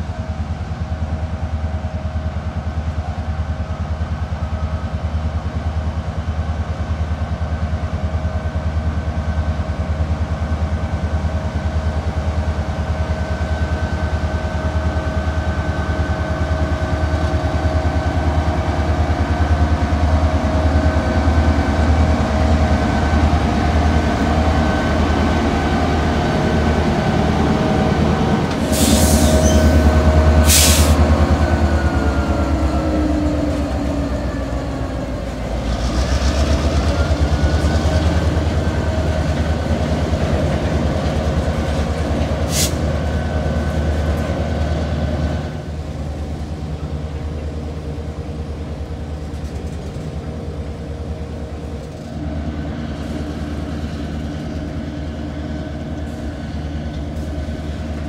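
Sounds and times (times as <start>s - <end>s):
locomotive engine rumble: 0.0s - 58.0s
train wheels clattering on rails: 28.4s - 45.2s.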